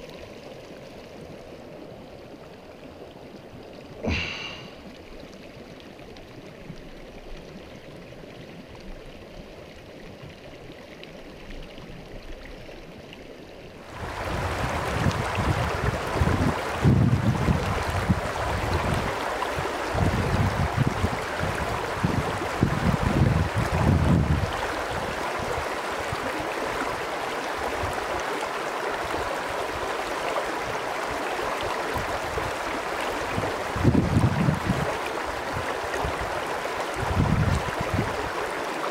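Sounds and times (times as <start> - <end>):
stream water rushing: 0.0 - 11.4, 12.3 - 38.9
creek burbling: 0.0 - 38.9
wind rumble on microphone: 13.9 - 27.0, 27.6 - 28.2, 30.6 - 38.4.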